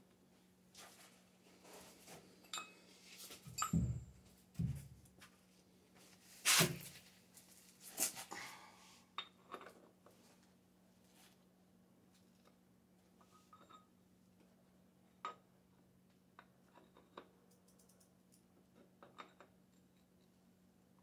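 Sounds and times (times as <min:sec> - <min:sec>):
tools and metal parts clinking: 0:03.5 - 0:04.0.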